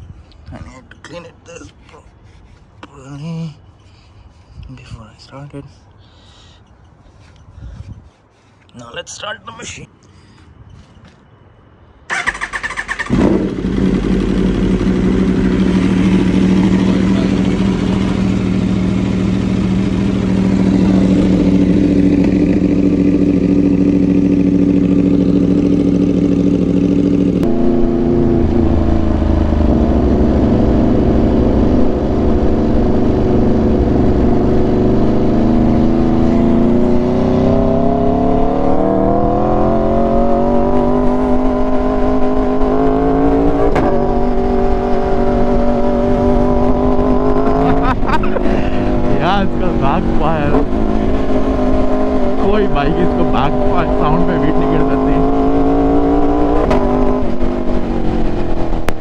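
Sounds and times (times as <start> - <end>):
engine starter cranking: 12.1 - 13.2
motorcycle engine idling: 12.4 - 27.4.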